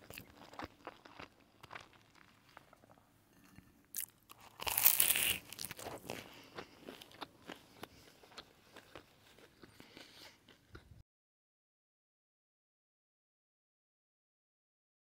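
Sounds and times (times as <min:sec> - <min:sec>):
person biting something crunchy: 0:03.9 - 0:10.6.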